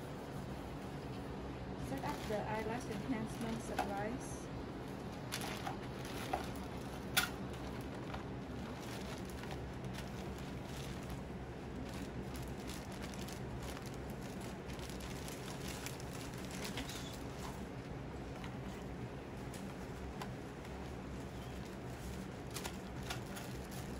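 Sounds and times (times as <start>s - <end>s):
room hum: 0.0s - 23.9s
plastic bag crinkling: 4.8s - 17.9s, 19.4s - 23.9s.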